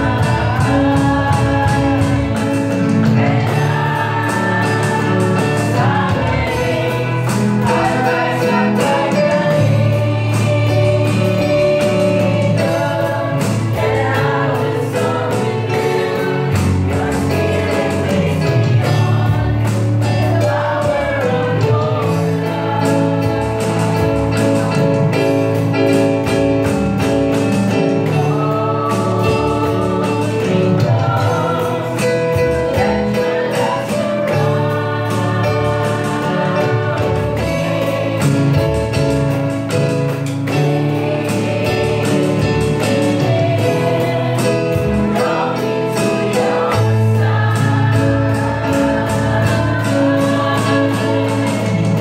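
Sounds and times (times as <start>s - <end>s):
women singing together: 0.0s - 25.6s, 28.0s - 52.0s
acoustic guitar: 0.0s - 52.0s
drums: 0.0s - 52.0s
keyboard: 0.0s - 52.0s.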